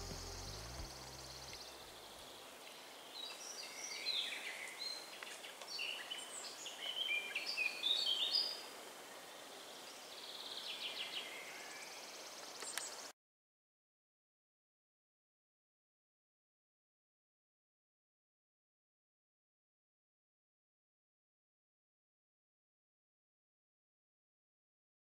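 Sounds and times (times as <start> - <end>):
bird singing: 0.0 - 13.1.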